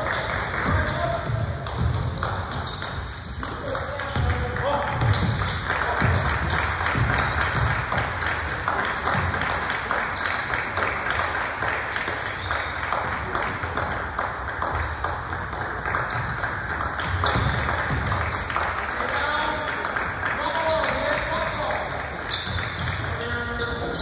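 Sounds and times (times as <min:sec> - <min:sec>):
sneakers squeaking: 0:00.0 - 0:10.6, 0:12.0 - 0:24.0
hubbub of players and spectators: 0:00.0 - 0:24.0
basketball bouncing: 0:00.1 - 0:09.7, 0:14.6 - 0:19.0.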